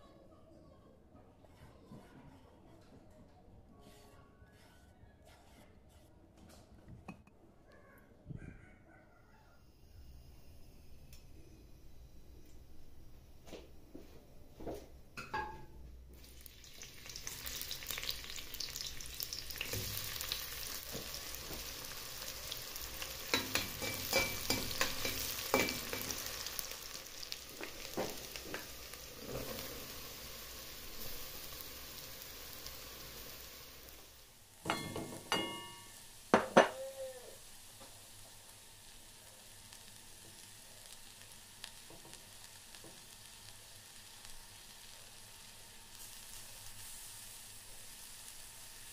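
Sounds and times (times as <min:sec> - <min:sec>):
vegetables sizzling in hot oil: 0:15.2 - 0:48.9.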